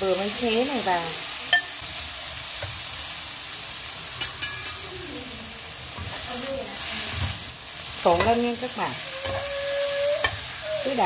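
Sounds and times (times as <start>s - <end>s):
pork sizzling in a pan: 0.0s - 11.0s
utensils clicking against pan: 4.2s - 4.9s, 8.0s - 11.0s.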